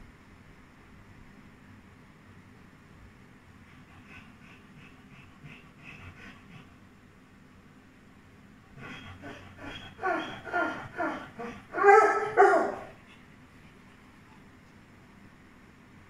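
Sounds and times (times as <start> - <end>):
puppy yelping whines: 8.8 - 13.0.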